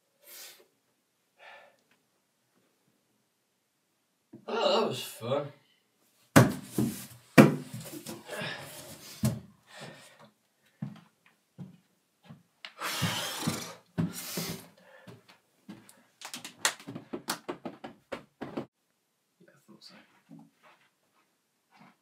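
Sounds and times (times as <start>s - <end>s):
thumps and footsteps: 6.3s - 9.5s, 10.8s - 18.7s.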